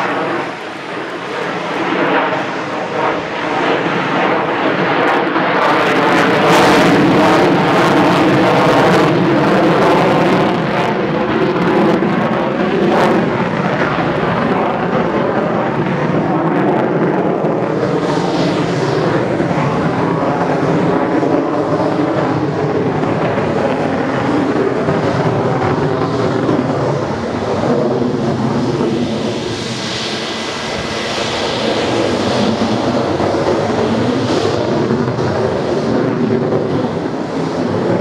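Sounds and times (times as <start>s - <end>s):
jet engine roaring: 0.0s - 38.0s.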